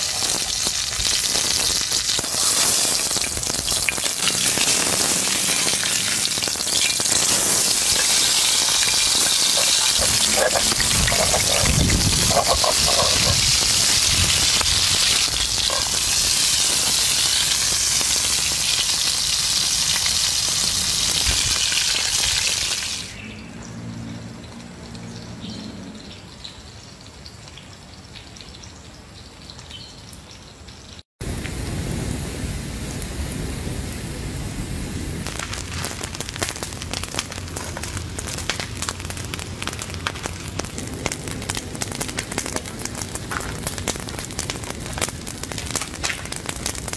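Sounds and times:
meat sizzling in hot pan: 0.0s - 23.1s
salt crackling and popping in skillet: 0.0s - 23.2s, 24.4s - 32.0s, 35.2s - 46.9s.

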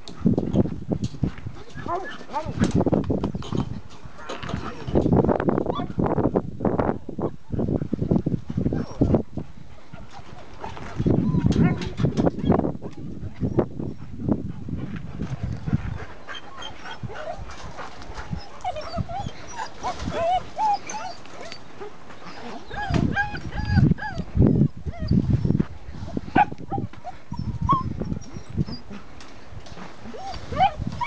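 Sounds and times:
puppies whining and yipping: 8.8s - 9.2s, 9.8s - 14.1s, 15.4s - 29.1s, 29.8s - 31.0s.

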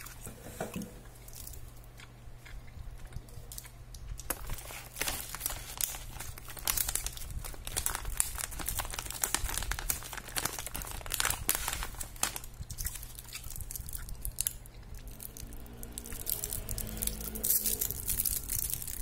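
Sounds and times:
plastic candy wrapper crinkling: 3.5s - 19.0s.

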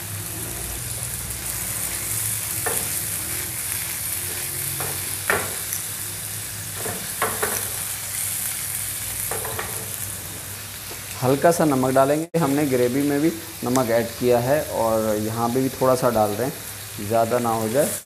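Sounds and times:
chicken sizzling in hot oil: 0.0s - 18.0s
utensil knocking and scraping pan: 2.6s - 3.0s, 4.7s - 5.7s, 6.8s - 7.8s, 9.3s - 10.4s.

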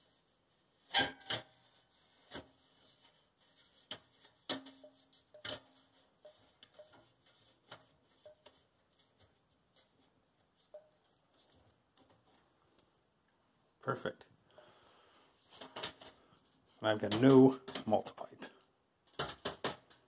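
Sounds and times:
metal plate clicking and knocking: 3.9s - 8.6s, 19.1s - 20.0s.

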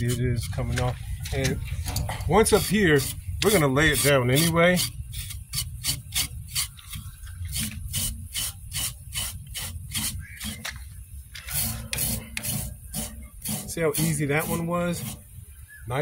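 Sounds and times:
scraper rasping on skin: 2.5s - 10.6s, 11.4s - 15.2s.

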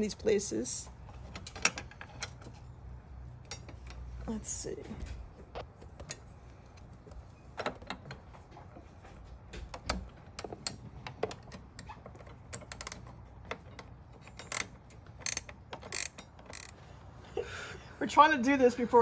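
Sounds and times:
metallic wrench clicks: 14.3s - 16.8s.

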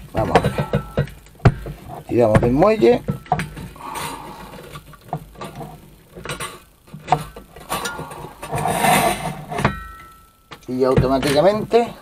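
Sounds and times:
cable tie scraping rustle: 4.1s - 9.6s.

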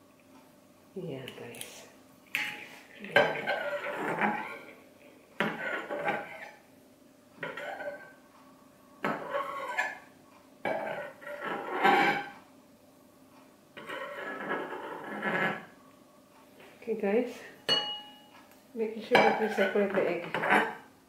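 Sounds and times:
metal spoon scraping porcelain bowl: 2.5s - 4.7s, 5.4s - 6.6s, 7.4s - 8.2s, 9.1s - 10.0s, 10.7s - 12.4s, 13.8s - 15.7s, 19.1s - 20.8s.

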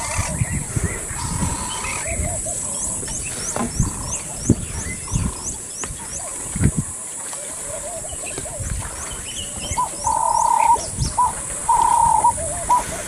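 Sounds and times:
birds calling: 0.0s - 13.0s
wind buffeting microphone: 0.0s - 13.0s
bird high rising chirp: 9.2s - 12.8s.

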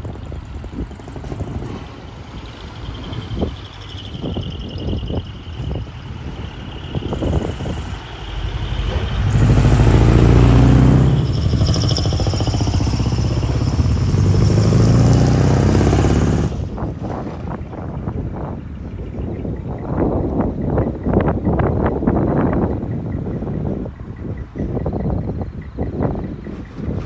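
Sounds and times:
diesel truck engine revving: 0.0s - 19.0s
high whine: 1.6s - 17.0s.

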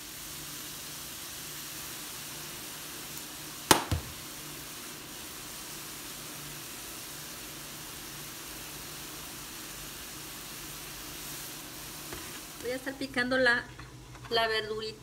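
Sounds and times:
meat sizzling in a skillet: 0.0s - 14.1s
sharp knocks: 3.7s - 4.2s.

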